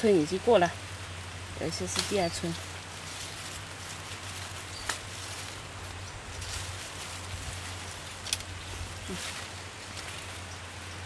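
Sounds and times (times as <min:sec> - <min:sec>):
leaves rustling: 0:00.0 - 0:11.0.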